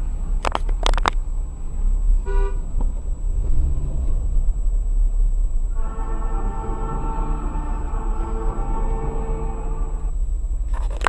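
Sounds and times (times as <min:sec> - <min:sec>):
car engine idling: 0:00.0 - 0:11.0
car horn toot: 0:02.2 - 0:02.8, 0:05.7 - 0:10.2.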